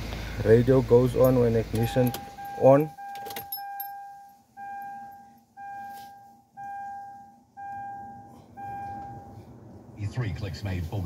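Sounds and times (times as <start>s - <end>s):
car warning chime: 1.0s - 9.5s.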